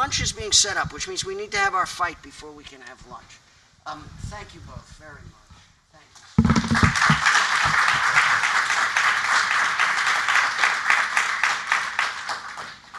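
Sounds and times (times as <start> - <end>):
microphone thumps on table: 6.4 - 7.8
audience applauding: 6.6 - 12.9.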